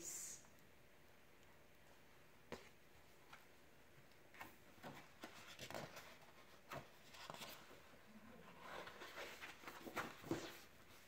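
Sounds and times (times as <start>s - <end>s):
paper rustling: 4.3s - 7.9s, 8.5s - 11.0s.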